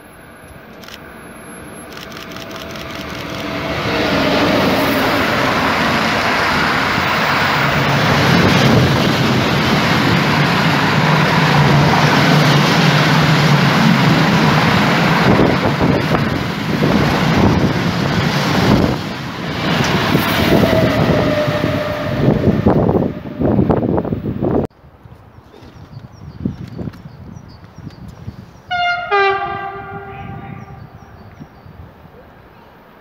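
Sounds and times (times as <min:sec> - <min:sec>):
freight train wheels rumbling on rails: 0:00.0 - 0:24.7.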